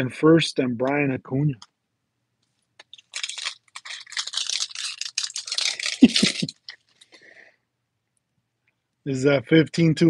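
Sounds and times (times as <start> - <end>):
foil wrapper crinkling and tearing: 2.8 - 7.2.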